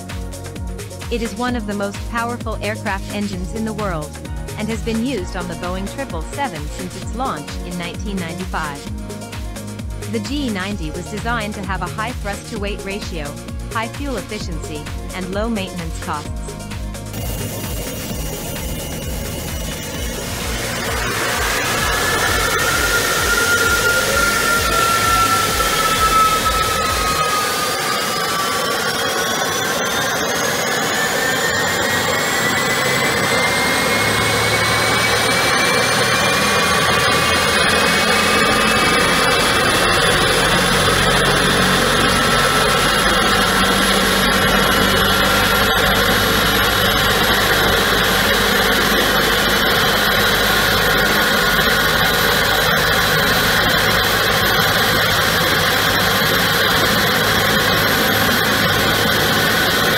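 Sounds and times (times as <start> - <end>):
jet engine whine: 1.8 - 59.9
low engine rumble: 3.6 - 28.0.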